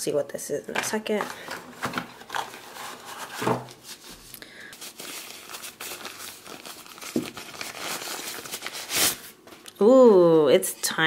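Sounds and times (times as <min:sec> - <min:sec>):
paper wrapping crinkling: 0:01.2 - 0:09.5.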